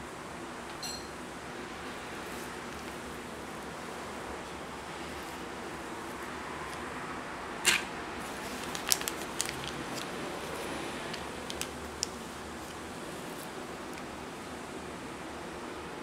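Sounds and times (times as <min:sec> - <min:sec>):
light clicks and crackles: 0:08.5 - 0:12.8.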